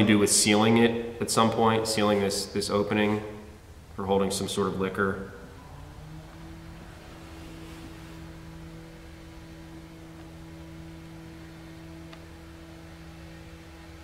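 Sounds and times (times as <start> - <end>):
electrical hum: 0.0 - 14.0
faint hiss: 0.0 - 14.0.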